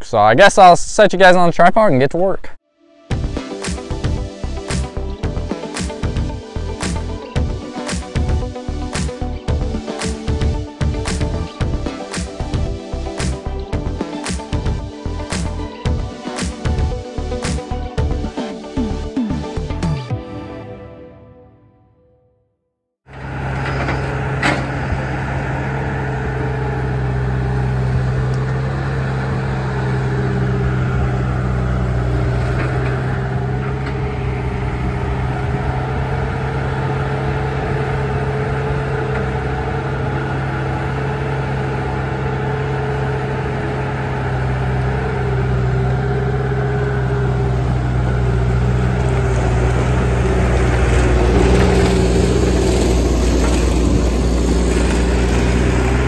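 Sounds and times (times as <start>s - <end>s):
diesel engine running under load: 3.1s - 19.1s, 23.1s - 56.0s.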